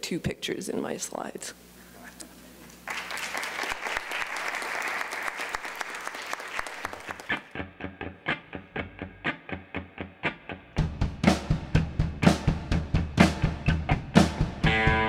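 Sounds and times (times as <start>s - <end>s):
audience applauding: 2.8s - 7.6s
drums: 10.8s - 15.0s.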